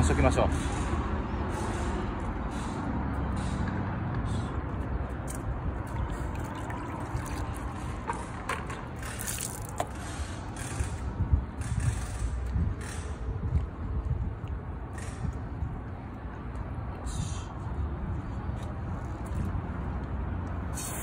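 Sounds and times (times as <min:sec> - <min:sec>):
steady low rumble: 0:09.0 - 0:20.6
spray bottle hiss: 0:20.7 - 0:21.0.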